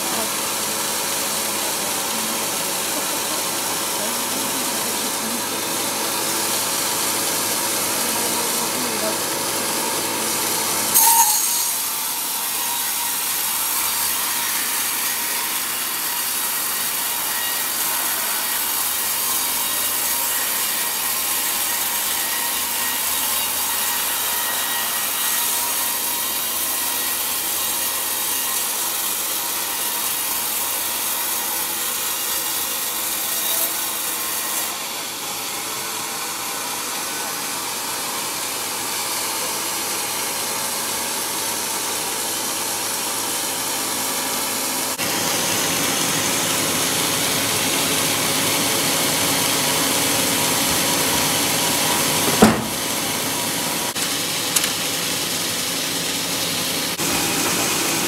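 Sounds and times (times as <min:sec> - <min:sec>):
band saw cutting log: 0:00.0 - 0:58.0
loud knock: 0:52.3 - 0:53.0.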